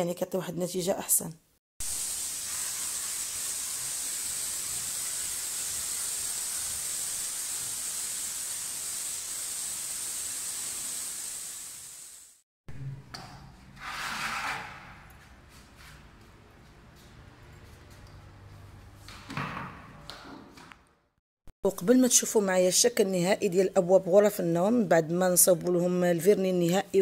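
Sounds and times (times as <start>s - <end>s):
spray gun hissing: 1.8s - 12.4s.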